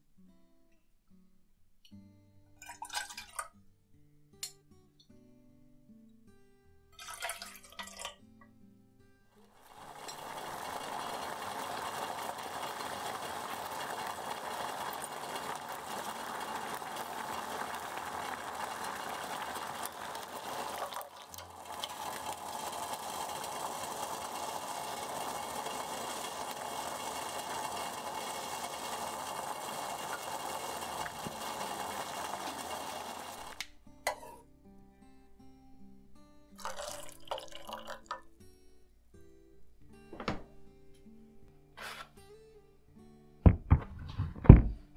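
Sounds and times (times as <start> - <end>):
sauce boiling and bubbling: 9.5 - 33.7, 36.6 - 38.1.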